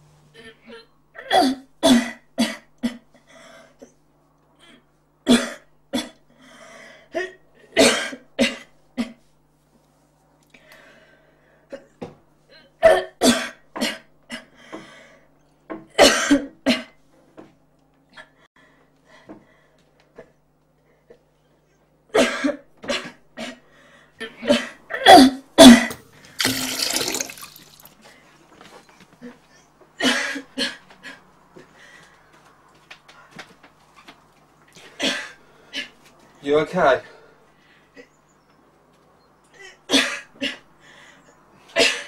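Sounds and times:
person breathing: 6.3 - 7.1, 10.5 - 11.7, 23.7 - 24.2
person coughing: 7.8 - 9.2, 16.0 - 17.0, 24.4 - 27.4.

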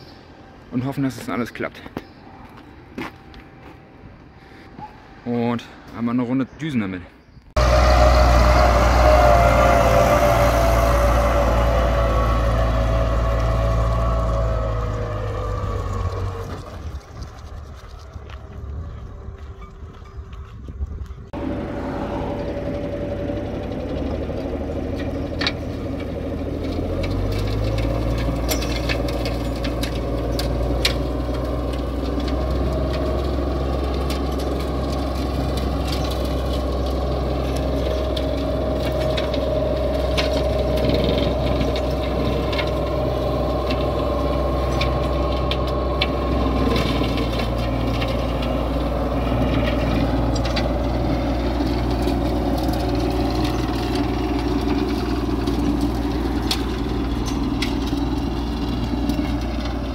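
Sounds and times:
tractor diesel engine running: 7.5 - 59.9
steady whine: 7.6 - 20.4
clicks and rattles: 25.0 - 42.9.

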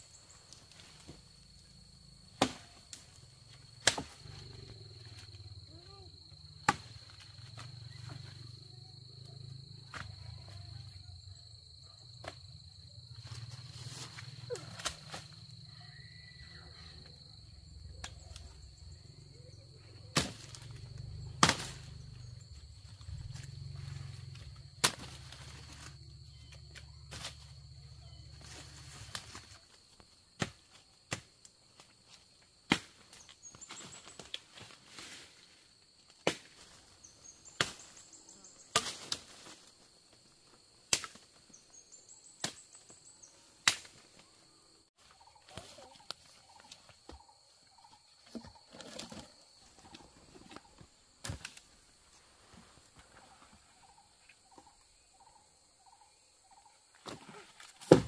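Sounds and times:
high insect whine: 0.0 - 58.0
machete chopping wood: 2.4 - 2.7, 3.8 - 4.2, 21.4 - 21.8, 38.7 - 39.2, 43.6 - 44.0, 57.8 - 58.0.

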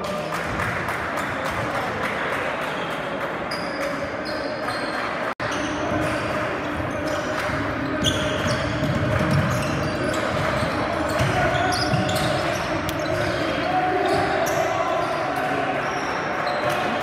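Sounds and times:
sneaker squeaks: 3.5 - 17.0
ball bouncing on court: 5.5 - 13.4.

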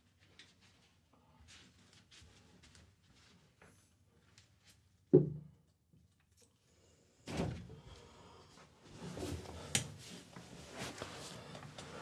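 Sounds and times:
rustling and handling noises: 8.9 - 12.0.

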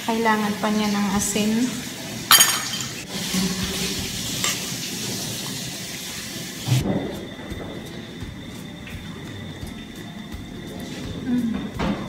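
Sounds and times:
sauce sizzling in a pan: 0.0 - 6.8.

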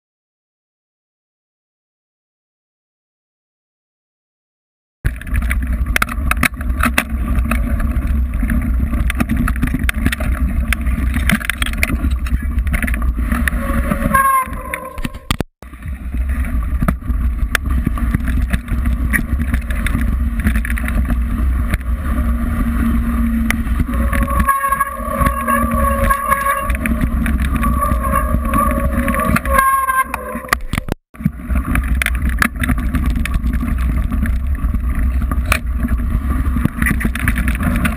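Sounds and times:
bike clicking and rattling: 5.1 - 37.9
bike tyres on gravel: 5.1 - 37.9
wind on microphone: 5.1 - 37.9
pitched squeal: 13.1 - 15.4, 22.0 - 31.0.

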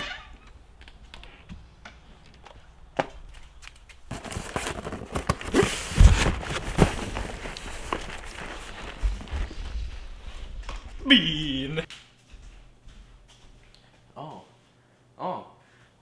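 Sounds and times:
cardboard box flaps scraping: 4.1 - 10.2.

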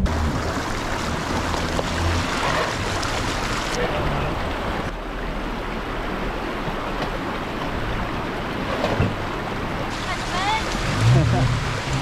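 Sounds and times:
car engine running low: 0.0 - 6.9, 7.6 - 12.0
water rushing in creek: 0.0 - 12.0.

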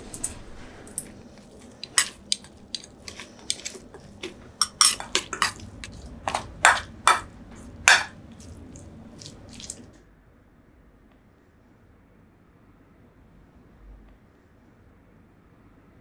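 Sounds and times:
metal spoon clinking in a bowl: 1.6 - 7.3, 7.9 - 8.1.

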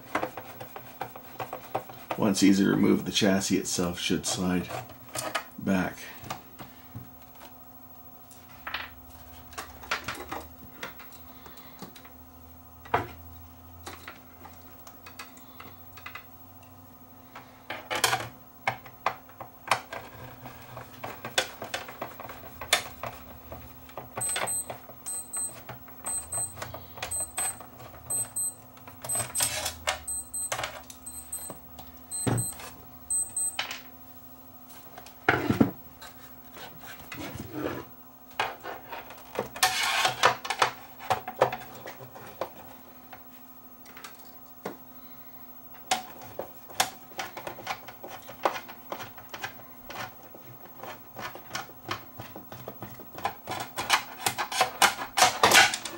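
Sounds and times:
steady low hum: 20.4 - 37.9
short high-pitched beeps: 24.2 - 33.6.

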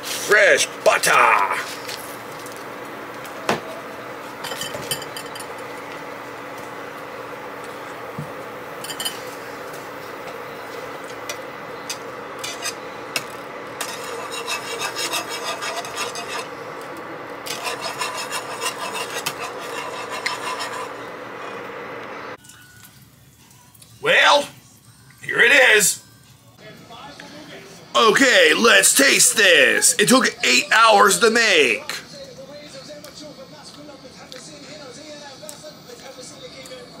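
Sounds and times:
steady hum: 0.0 - 22.4
whisk scraping metal pan: 12.4 - 13.0, 13.7 - 16.8, 17.4 - 21.6.

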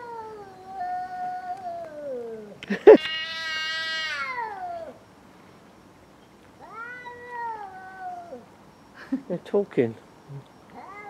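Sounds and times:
cat meowing: 0.0 - 5.0, 6.6 - 8.4, 10.7 - 11.0.

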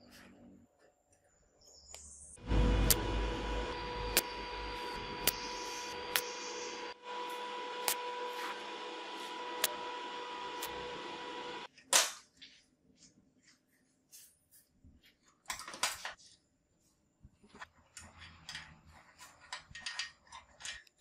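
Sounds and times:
arc welding crackling hiss: 2.5 - 11.7.

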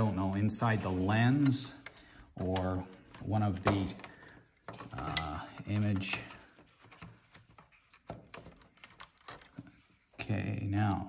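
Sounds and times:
plastic parts clicking: 1.3 - 9.9.

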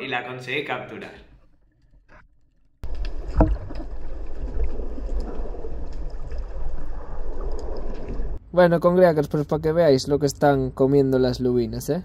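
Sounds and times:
water rushing and bubbling underwater: 1.7 - 8.4.

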